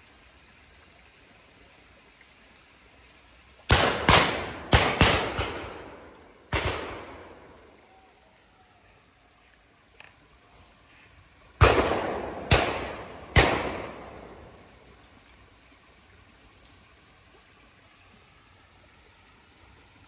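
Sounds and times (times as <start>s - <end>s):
shotgun shots with echo: 3.7s - 7.4s, 11.6s - 14.4s.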